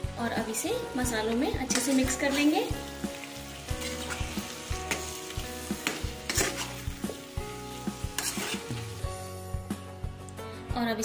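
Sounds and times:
frying oil hissing: 0.5s - 9.6s
spatula scraping steel pan: 3.8s - 7.2s, 8.0s - 9.0s.

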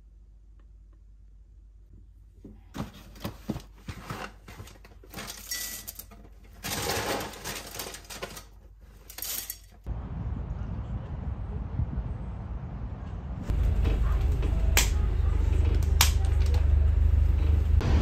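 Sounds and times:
dry cereal pouring into bowl: 6.7s - 8.0s.

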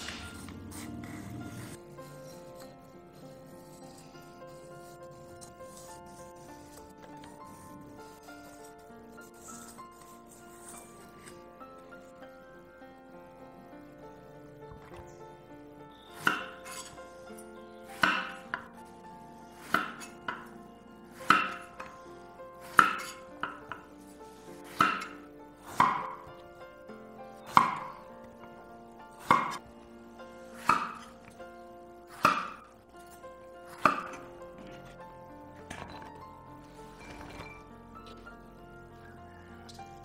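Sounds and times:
soft background music: 0.0s - 40.0s
knife chopping on wooden board: 18.0s - 18.4s, 21.2s - 21.7s, 22.7s - 23.8s, 24.7s - 26.2s, 29.2s - 29.6s, 30.6s - 31.1s, 32.1s - 32.6s, 33.7s - 34.2s.

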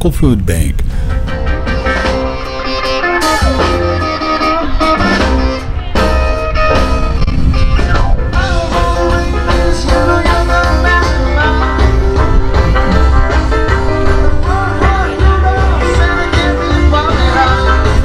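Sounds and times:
electric guitar: 0.8s - 18.0s
band playing blues-rock: 0.9s - 18.0s.

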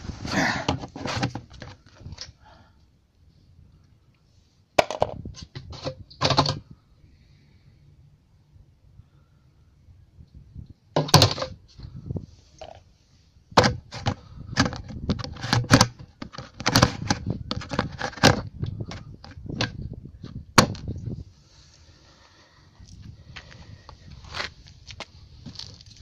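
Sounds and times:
plastic lid knocking and rattling: 4.8s - 6.6s, 11.0s - 11.6s, 13.6s - 19.8s, 20.6s - 20.9s.

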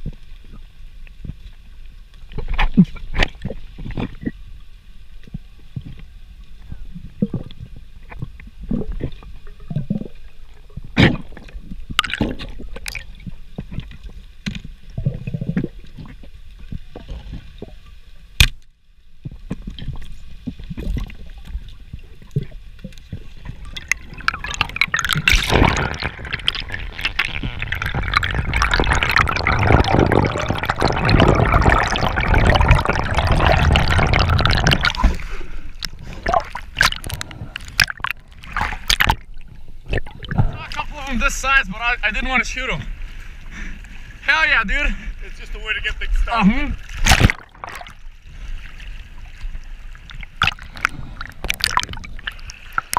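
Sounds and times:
bubbling rush of water: 6.6s - 14.2s, 19.2s - 42.7s, 45.6s - 52.9s
underwater clicks and knocks: 7.2s - 17.5s, 18.4s - 35.2s, 35.8s - 40.6s.

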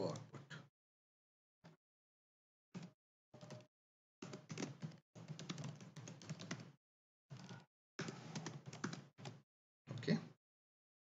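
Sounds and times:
typing on computer keyboard: 2.8s - 9.4s.

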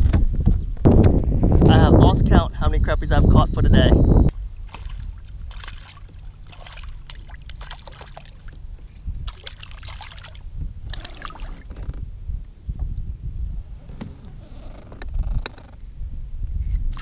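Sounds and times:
low steady rumble: 0.0s - 17.0s
fish splashing in water: 4.6s - 8.6s, 9.2s - 11.7s.

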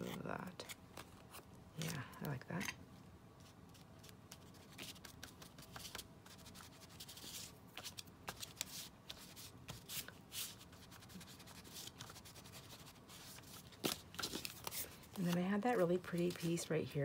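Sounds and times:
paper rustling: 3.4s - 17.0s.

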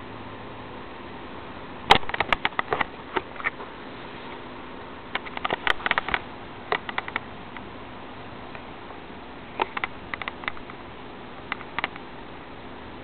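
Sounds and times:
steady hiss: 0.0s - 13.0s
light sharp clicks: 9.6s - 10.8s, 11.5s - 12.1s.

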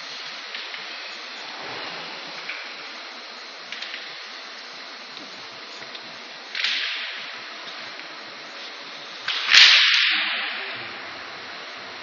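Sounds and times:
short hissing bursts: 0.0s - 5.8s
steady background hiss: 0.0s - 12.0s.

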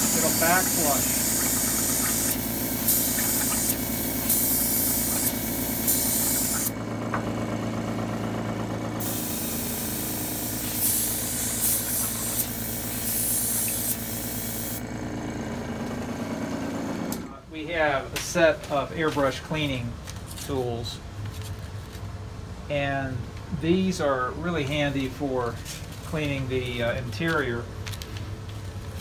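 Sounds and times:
airbrush hissing: 0.0s - 6.7s, 9.0s - 14.8s
compressor humming: 0.0s - 20.1s.

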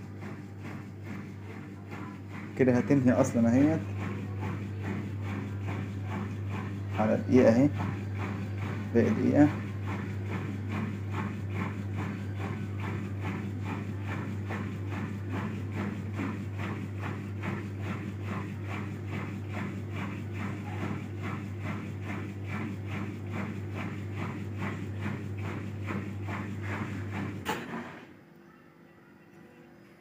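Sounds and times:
washing machine spinning: 0.0s - 28.4s, 29.3s - 30.0s.

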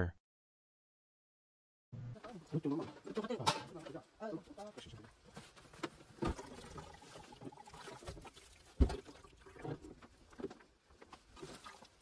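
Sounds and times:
water pattering into plastic bucket: 5.8s - 12.0s.

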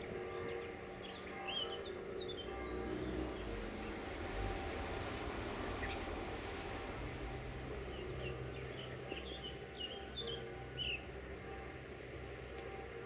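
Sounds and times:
small birds chirping: 0.0s - 6.5s, 7.3s - 11.8s.

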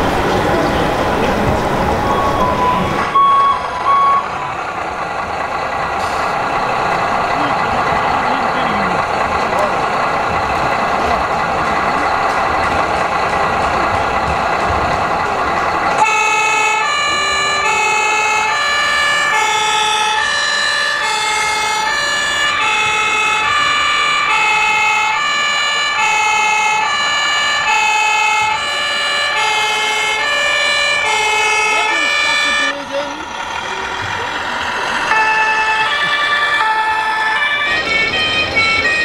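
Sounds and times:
steady noisy din: 0.0s - 39.0s
two-tone siren: 1.8s - 5.1s, 16.0s - 32.9s, 34.0s - 39.0s.

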